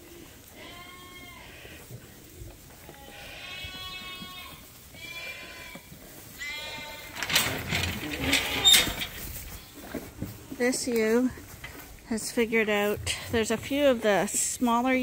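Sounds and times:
lambs bleating: 0.5s - 1.9s, 2.8s - 9.9s
rustling and knocks: 7.1s - 12.4s.

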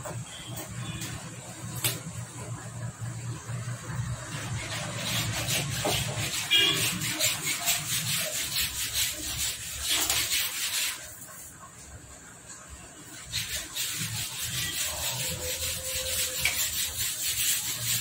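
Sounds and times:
rubbing and scraping strokes: 4.3s - 11.6s, 13.1s - 18.0s.

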